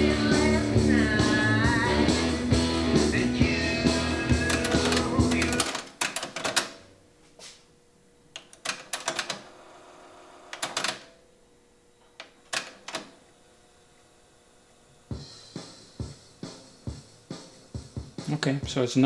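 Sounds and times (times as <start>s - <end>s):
music playing from cassette: 0.0s - 6.0s, 15.1s - 18.9s
cassette deck clicks and clunks: 4.4s - 6.8s.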